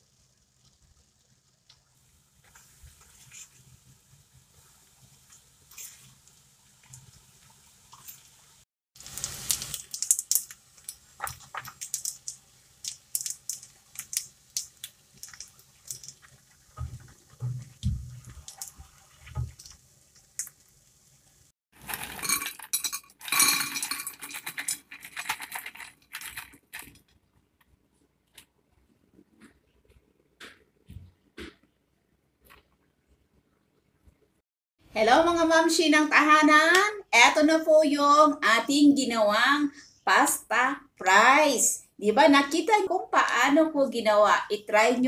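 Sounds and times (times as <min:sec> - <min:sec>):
fried pasta rattling in basket: 0:21.8 - 0:27.1.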